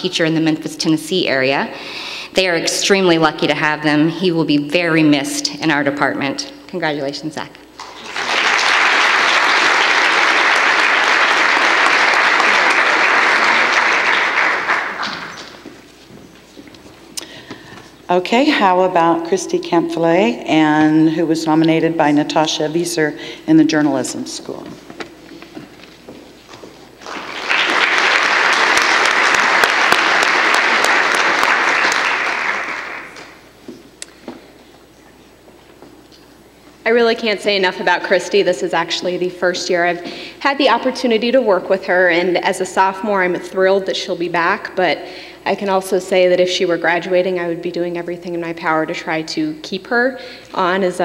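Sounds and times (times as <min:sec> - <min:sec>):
audience applauding: 0:07.8 - 0:15.7, 0:27.0 - 0:33.4.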